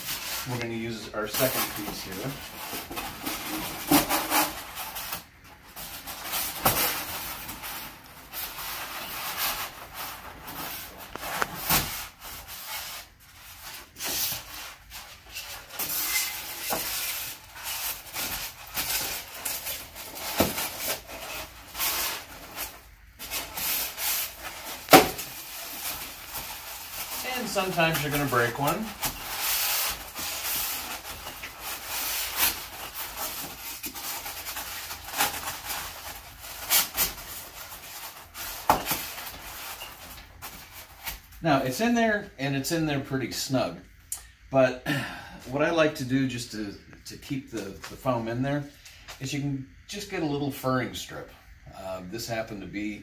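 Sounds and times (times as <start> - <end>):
styrofoam scraping metal frame: 0.0 - 5.2, 5.8 - 41.2.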